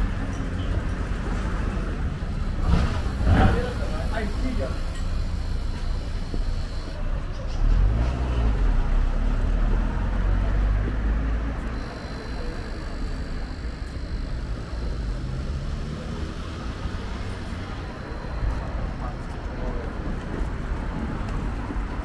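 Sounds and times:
traffic noise: 0:00.0 - 0:22.0
vehicle engine passing: 0:14.3 - 0:21.8.

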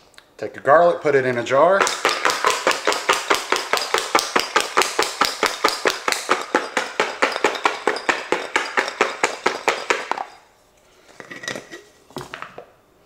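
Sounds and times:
garlic knocking in shaken jar: 0:01.8 - 0:10.4.

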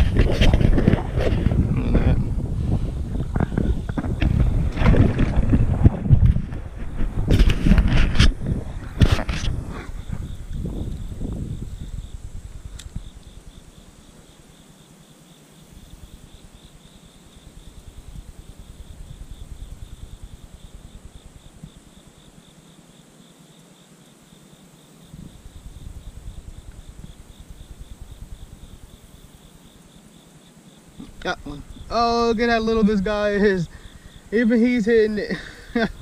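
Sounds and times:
low rumble: 0:00.0 - 0:12.7
insects trilling: 0:00.0 - 0:36.0.

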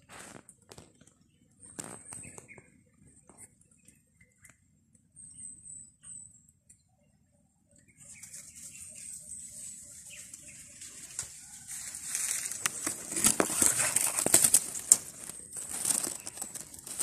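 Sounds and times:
twigs crackling and snapping: 0:00.1 - 0:02.6, 0:10.3 - 0:17.0
dry bamboo leaves rustling: 0:09.5 - 0:17.0.

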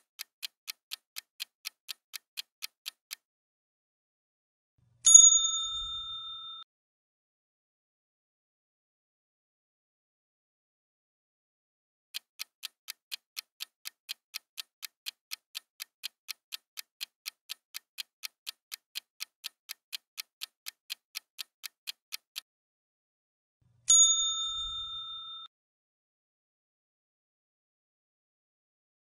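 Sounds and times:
clock-like timer ticking: 0:00.0 - 0:03.3, 0:12.2 - 0:22.5
bright bell ding: 0:05.1 - 0:06.6, 0:23.9 - 0:25.5.

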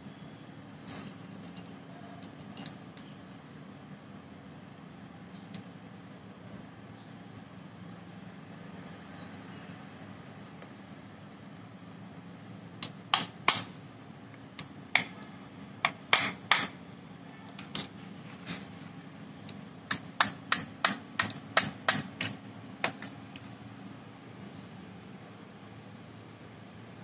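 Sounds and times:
pliers tapping on metal: 0:19.9 - 0:23.2.

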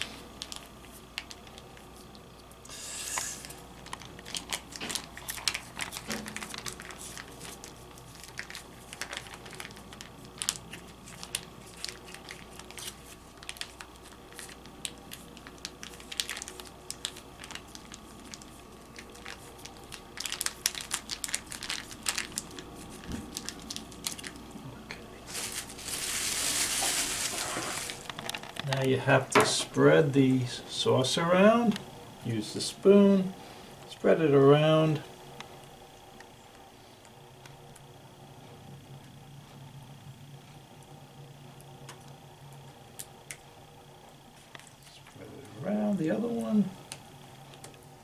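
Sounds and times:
plastic pouch crinkling: 0:00.4 - 0:02.2, 0:03.2 - 0:24.5, 0:25.2 - 0:28.8.

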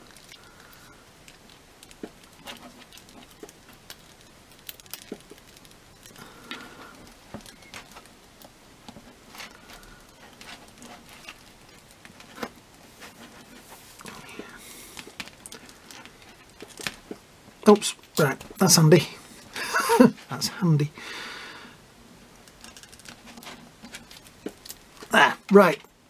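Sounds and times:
light handling rustle: 0:00.0 - 0:20.6.

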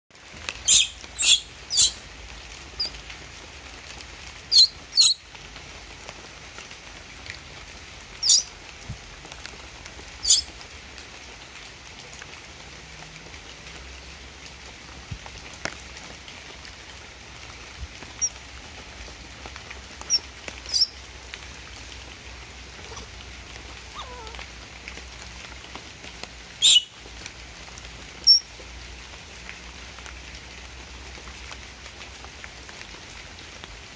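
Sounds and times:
rain on leaves: 0:00.1 - 0:33.9
baby monkey squeaking: 0:00.6 - 0:02.0, 0:04.5 - 0:05.2, 0:08.2 - 0:08.5, 0:10.2 - 0:10.5, 0:20.1 - 0:20.9, 0:22.8 - 0:23.1, 0:23.9 - 0:24.4, 0:26.6 - 0:26.8.

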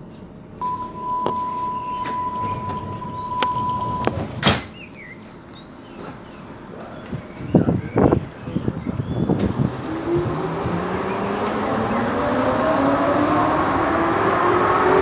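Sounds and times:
high warning beep: 0:00.6 - 0:04.2
train doors banging shut: 0:01.2 - 0:04.8.

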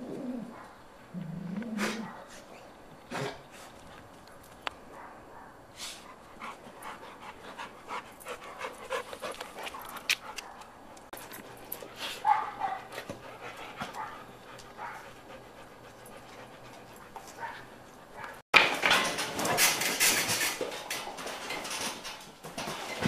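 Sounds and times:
dog panting: 0:06.0 - 0:10.7, 0:11.8 - 0:18.4.

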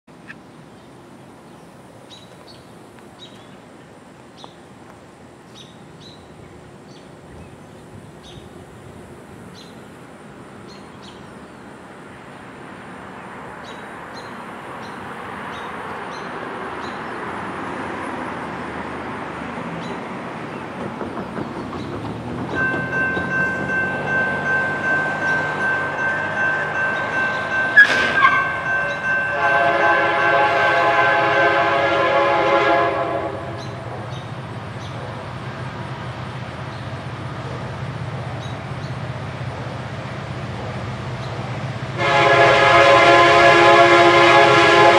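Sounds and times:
freight train rumble: 0:00.1 - 0:44.9
birds chirping: 0:19.8 - 0:29.3, 0:33.6 - 0:41.7
locomotive air horn chord: 0:24.3 - 0:33.8, 0:42.0 - 0:44.9.

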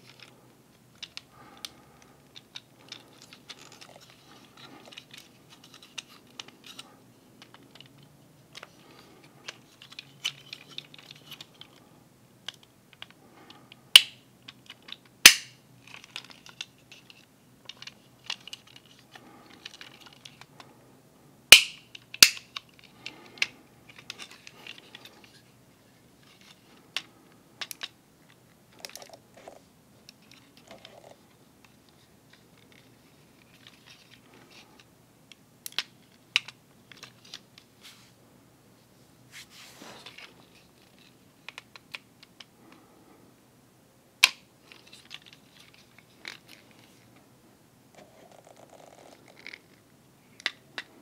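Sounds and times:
plastic parts clicking and snapping: 0:00.9 - 0:11.8, 0:12.4 - 0:20.7, 0:21.5 - 0:25.4, 0:26.2 - 0:29.2, 0:30.0 - 0:37.7, 0:40.0 - 0:42.8, 0:44.2 - 0:46.9, 0:50.4 - 0:51.0.

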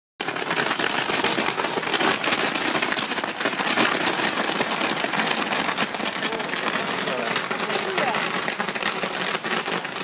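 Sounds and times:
firecrackers crackling: 0:00.2 - 0:10.0.

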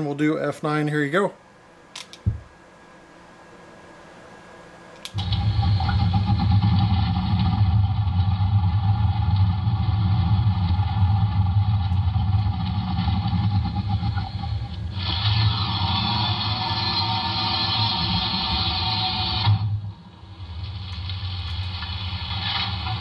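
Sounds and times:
low hum with constant tone: 0:00.0 - 0:23.0
click: 0:05.0 - 0:05.2.

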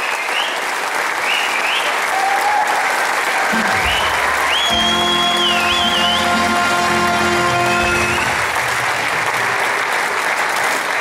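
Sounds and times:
audience applauding: 0:00.0 - 0:11.0
music sustained chord: 0:03.5 - 0:09.6.

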